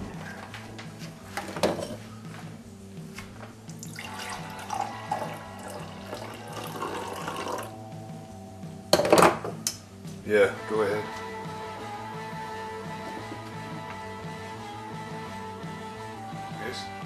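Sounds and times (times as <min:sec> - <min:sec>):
coffee pouring into mug: 0:03.8 - 0:07.7.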